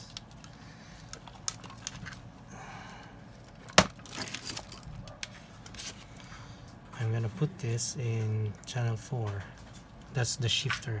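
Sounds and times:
hands handling wires and plugs: 0.0 - 2.3, 3.3 - 6.3.

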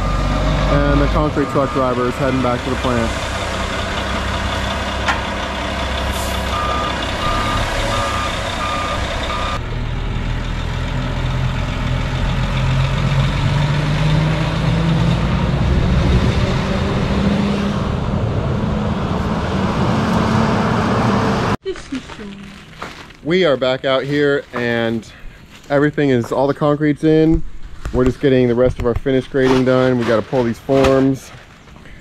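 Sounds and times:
reversing alarm beeping: 0.0 - 2.6, 6.5 - 9.6
truck diesel engine running: 0.0 - 21.6.

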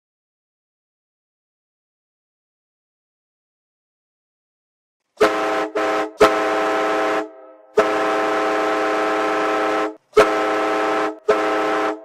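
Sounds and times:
goal air horn blasts: 5.2 - 12.0.

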